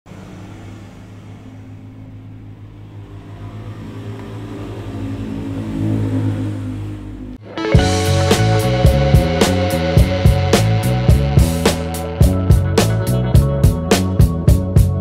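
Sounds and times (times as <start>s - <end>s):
motor humming: 0.1s - 11.8s.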